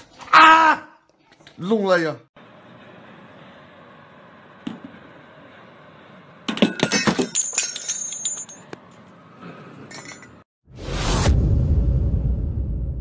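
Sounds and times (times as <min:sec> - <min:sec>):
glass shards tinkling: 0:06.6 - 0:08.7, 0:09.9 - 0:10.4.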